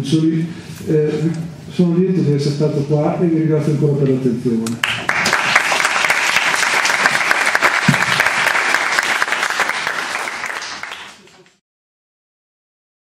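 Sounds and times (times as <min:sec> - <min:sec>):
audience applauding: 0:04.8 - 0:11.6.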